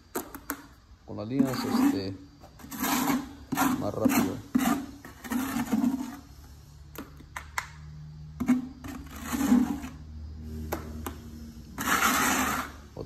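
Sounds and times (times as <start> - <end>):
mortar scraped from plastic bucket: 1.1 - 6.7, 8.3 - 13.0.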